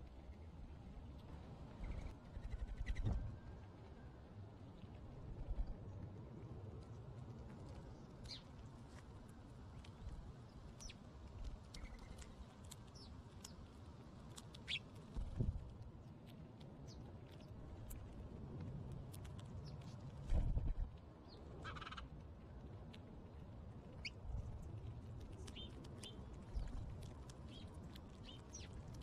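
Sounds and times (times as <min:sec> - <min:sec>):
birds pecking seed ticks: 0:00.0 - 0:29.0
low rumble: 0:20.1 - 0:21.0.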